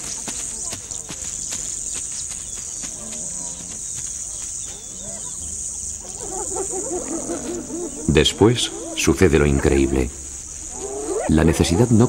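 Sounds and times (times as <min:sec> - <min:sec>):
crickets chirring: 0:00.0 - 0:12.0
hyena calls: 0:05.0 - 0:12.0.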